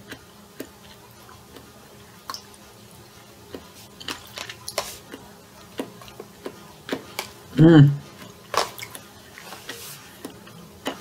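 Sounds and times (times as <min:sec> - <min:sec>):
person chewing wet clicks: 0:00.0 - 0:07.4, 0:08.1 - 0:11.0.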